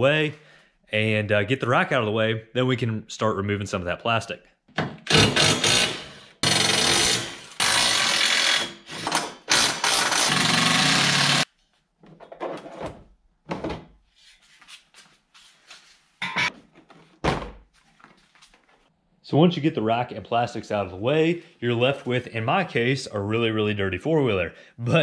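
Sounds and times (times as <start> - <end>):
impact driver running: 5.1 - 11.5.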